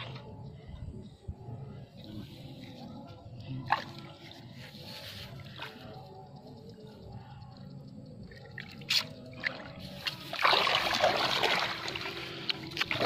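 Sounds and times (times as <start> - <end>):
fish splashing in water: 8.4 - 13.0.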